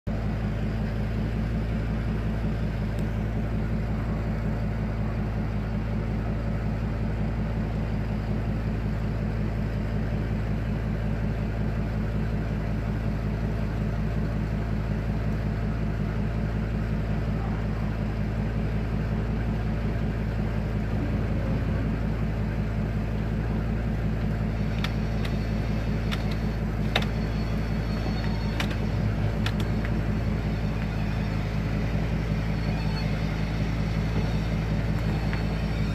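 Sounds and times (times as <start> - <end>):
vehicle engine humming: 0.0 - 35.9
thin high tone: 20.8 - 22.6
faint clicks: 24.7 - 30.0.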